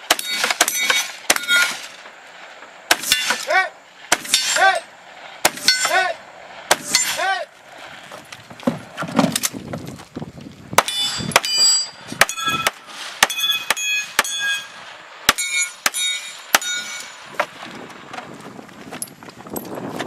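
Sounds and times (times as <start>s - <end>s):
steel targets ringing: 0.0s - 2.0s, 2.9s - 4.8s, 5.4s - 7.3s, 10.8s - 17.3s
gunshots: 6.7s - 7.3s.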